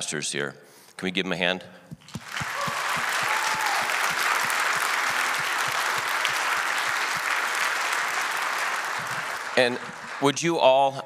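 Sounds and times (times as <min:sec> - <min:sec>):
crowd applauding: 0:02.1 - 0:10.6.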